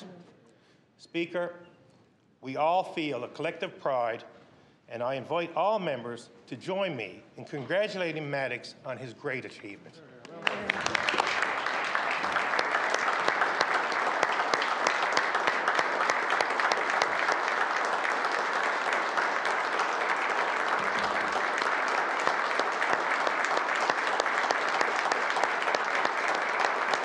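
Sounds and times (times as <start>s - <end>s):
crowd applauding: 10.3s - 27.0s.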